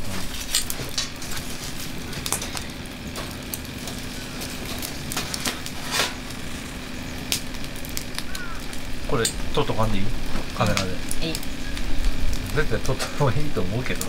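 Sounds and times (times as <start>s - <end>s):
wood fire crackling and popping: 0.0s - 14.0s.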